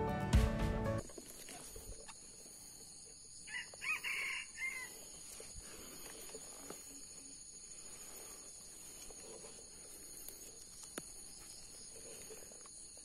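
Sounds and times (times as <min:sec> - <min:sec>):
intro music: 0:00.0 - 0:01.0
rooster crowing: 0:03.4 - 0:05.2.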